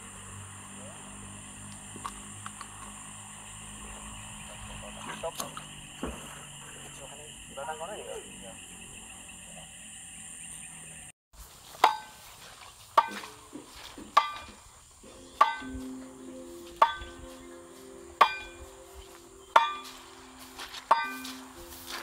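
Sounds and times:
log knocking on fence post: 5.4 - 6.3, 13.0 - 14.6.

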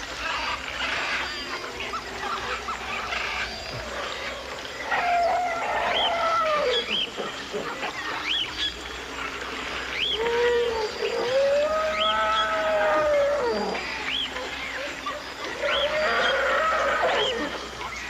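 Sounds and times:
long rising and falling animal calls: 9.9 - 17.6.

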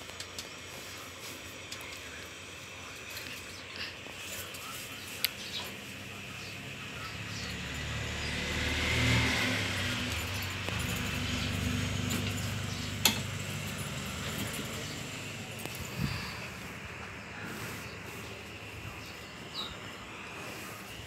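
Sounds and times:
passing vehicle engine rumble: 5.3 - 21.0.

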